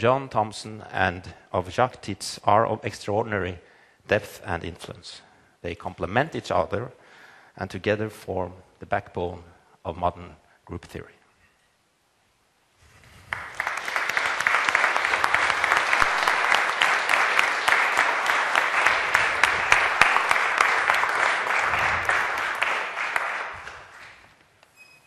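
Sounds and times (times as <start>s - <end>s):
audience applauding: 13.2s - 24.3s.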